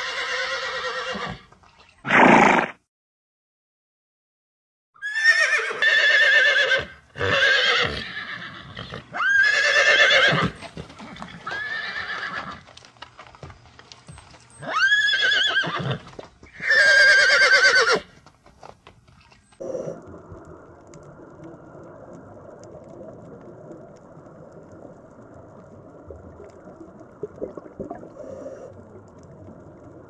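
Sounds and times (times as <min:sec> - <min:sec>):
horses whinnying: 0:00.0 - 0:02.8, 0:05.0 - 0:12.6, 0:14.5 - 0:18.1.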